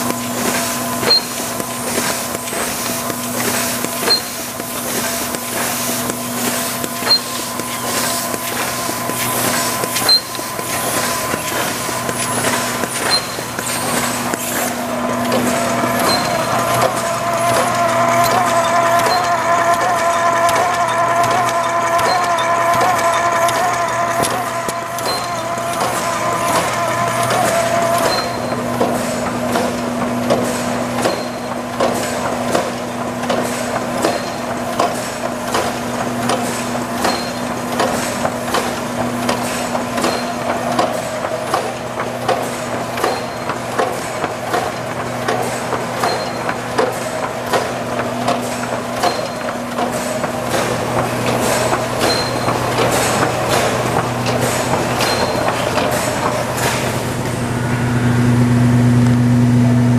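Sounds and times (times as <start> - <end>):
roller whine: 0.0 - 31.5
machine hum: 0.0 - 59.9
rapid mechanical clicking and clacking: 0.0 - 59.9.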